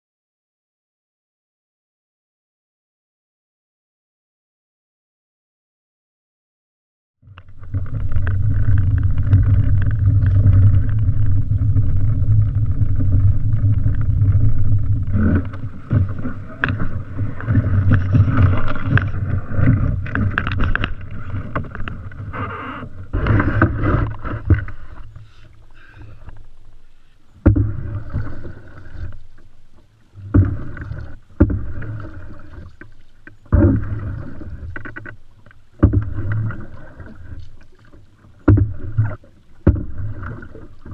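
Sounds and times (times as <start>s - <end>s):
wind rumble on microphone: 7.2s - 25.2s
knocks and scrapes on canoe hull: 7.4s - 40.9s
paddle strokes splashing: 7.4s - 40.9s.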